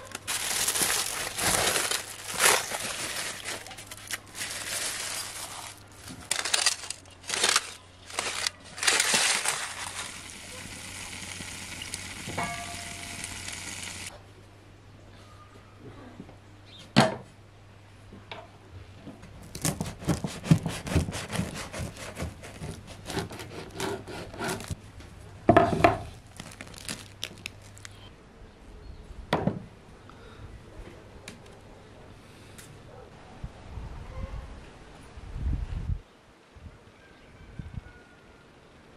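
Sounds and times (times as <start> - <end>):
knife sawing through bread crust: 19.5 - 24.8.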